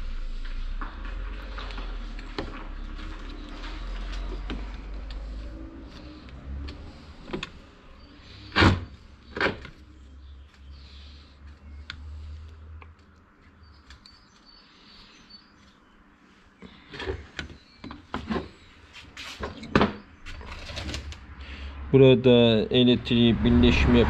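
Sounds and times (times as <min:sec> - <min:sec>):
low steady hum: 0:00.0 - 0:15.1.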